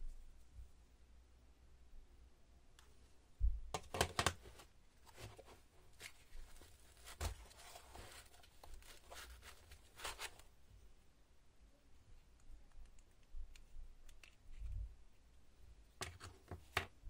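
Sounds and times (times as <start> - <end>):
hands rustling foam and strap: 3.4 - 10.7
plastic battery packs clicking: 3.8 - 4.4.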